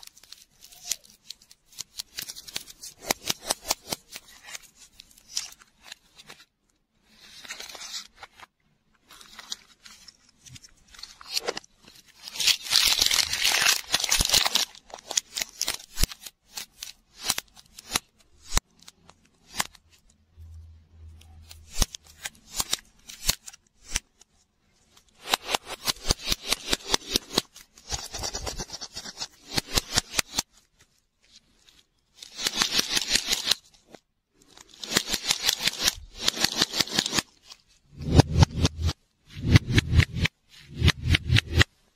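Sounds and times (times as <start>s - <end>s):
plastic wrappers crinkling: 9.2s - 16.2s.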